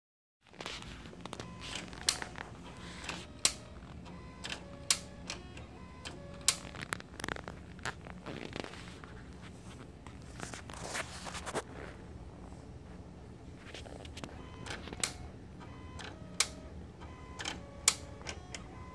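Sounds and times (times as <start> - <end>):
steady low hum: 0.5 - 18.9
disc drive clicking: 1.1 - 7.1, 14.1 - 18.9
soft scraping noises: 7.4 - 14.2.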